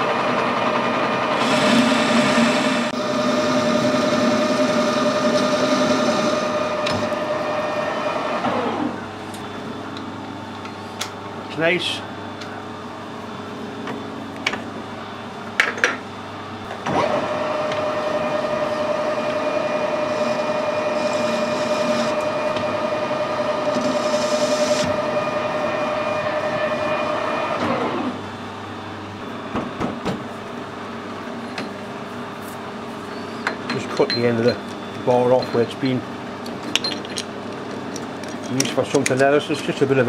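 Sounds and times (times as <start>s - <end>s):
cutting tool whine: 0.0s - 9.0s, 16.9s - 28.2s
lathe spindle hum: 0.0s - 9.8s, 16.8s - 28.4s.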